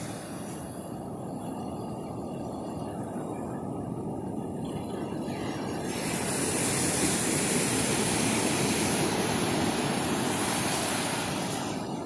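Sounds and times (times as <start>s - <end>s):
ocean waves breaking: 0.0s - 1.4s, 3.9s - 12.0s
surf rushing over sand: 0.0s - 12.0s.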